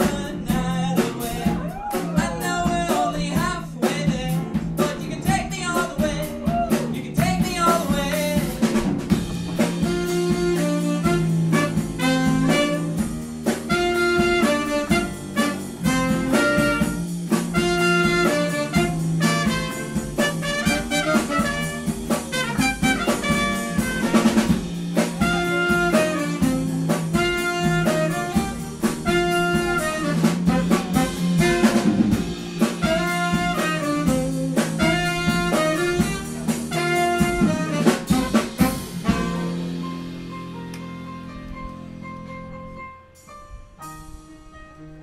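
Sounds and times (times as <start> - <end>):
drums: 0.0 - 45.0
electric guitar: 6.4 - 42.5
trumpet: 9.6 - 40.2
saxophone: 9.6 - 41.7
keyboard: 35.3 - 45.0.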